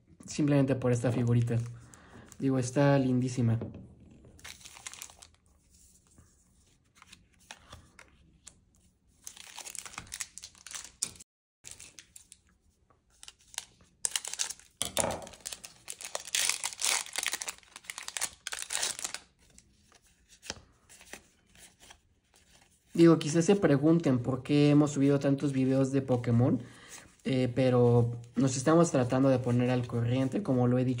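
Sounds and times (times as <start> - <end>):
foil pack tearing and crinkling: 4.4 - 5.4, 9.3 - 12.3, 13.2 - 19.4.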